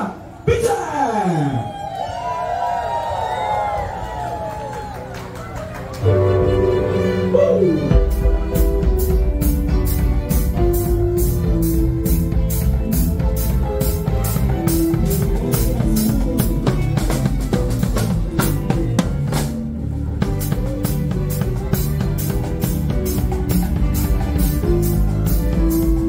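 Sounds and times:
held melody notes: 6.0 - 26.0
electric bass line: 6.1 - 26.0
drum kit beat with cymbals: 7.8 - 26.0.

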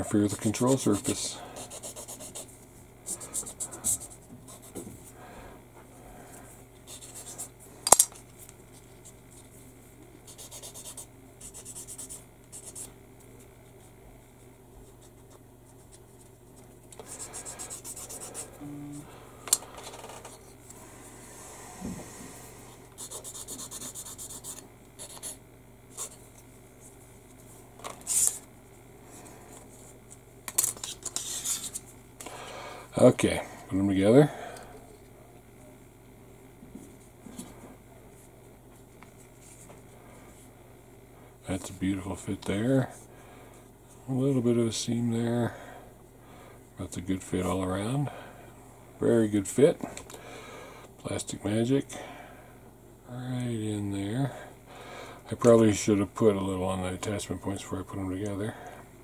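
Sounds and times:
sanding stick scratching plastic: 0.7 - 2.5.

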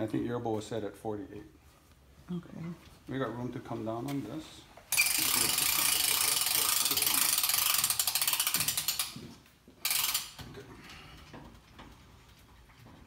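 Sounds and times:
ratchet winch clicking: 4.9 - 9.2, 9.8 - 10.5.

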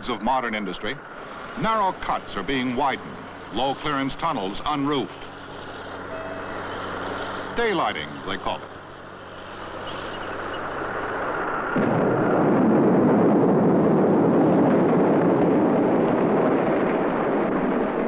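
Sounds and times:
rock rumble: 11.0 - 18.0
dynamite blast boom: 11.7 - 15.4.

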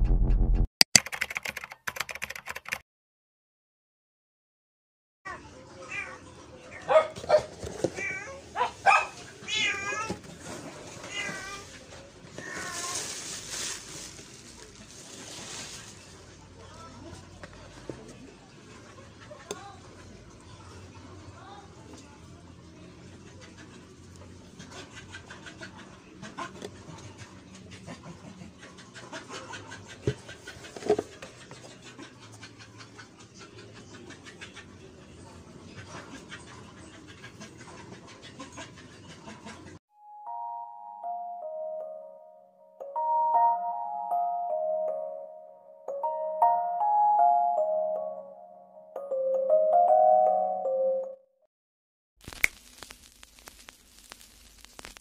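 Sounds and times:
cat meowing: 9.5 - 10.2.

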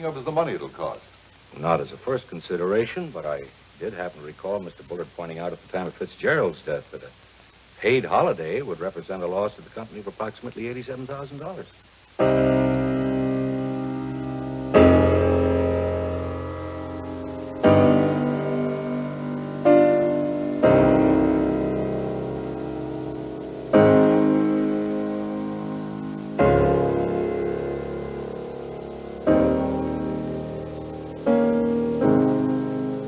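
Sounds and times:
piano sustained chords: 12.2 - 33.0.

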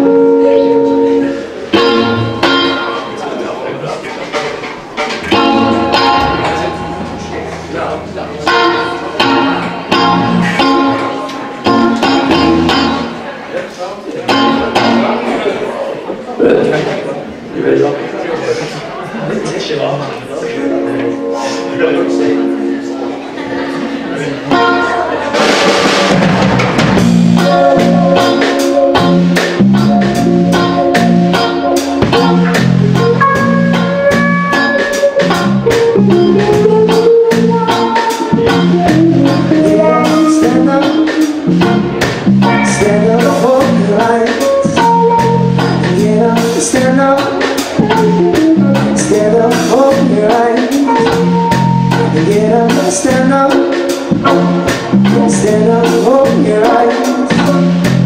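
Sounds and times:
electric guitars: 0.0 - 3.3, 4.2 - 15.5, 20.4 - 58.0
drum kit beat: 1.7 - 3.1, 4.5 - 13.2, 14.3 - 15.3, 24.5 - 58.0
bass line: 5.2 - 13.3, 22.0 - 58.0.

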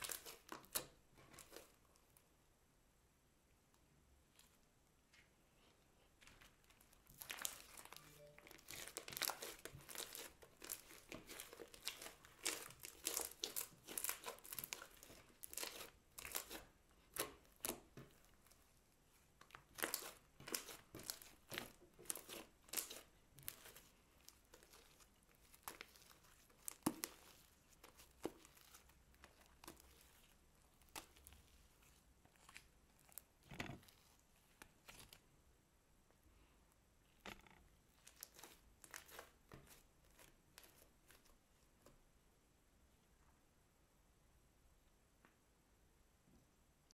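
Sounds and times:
slime crackling and clicking: 7.2 - 18.0.

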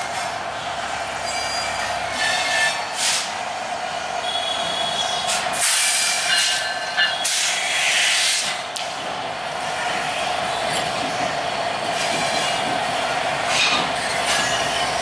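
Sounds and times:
diesel locomotive engine running: 0.0 - 15.0
train wheels squealing: 1.2 - 3.3, 13.5 - 15.0.

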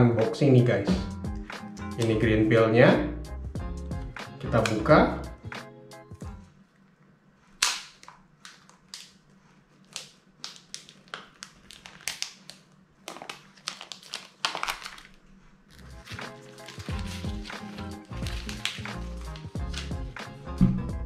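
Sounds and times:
plastic film tearing and crackling: 7.6 - 9.2, 9.8 - 20.2.

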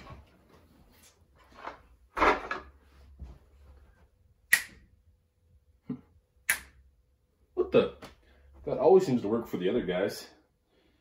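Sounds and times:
finger snap: 4.5 - 4.8, 6.5 - 6.8.

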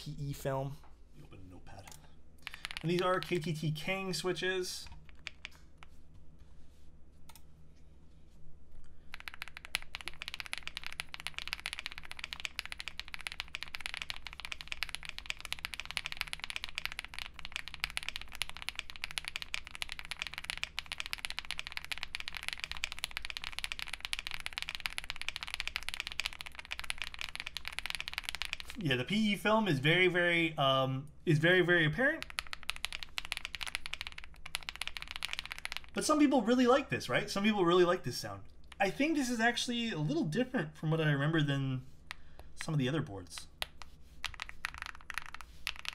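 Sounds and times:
fast typing on mechanical keyboard: 2.4 - 4.4, 5.0 - 5.6, 9.1 - 29.9, 32.0 - 37.5, 43.4 - 45.9.

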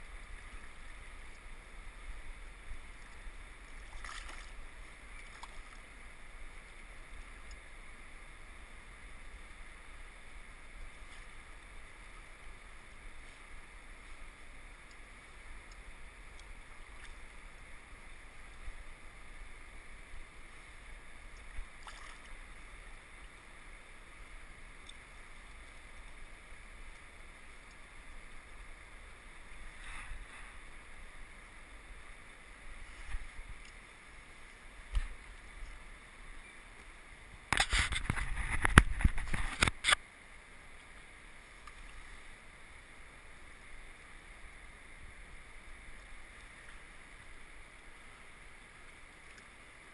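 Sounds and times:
river water: 0.0 - 49.9
wind: 0.0 - 49.9
fish splashing in water: 3.8 - 4.6, 21.8 - 22.4.

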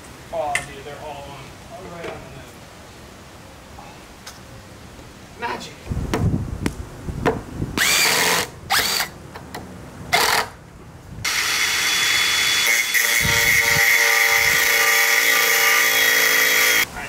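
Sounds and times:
power drill spinning: 7.8 - 9.2, 10.1 - 10.5, 11.3 - 16.9.

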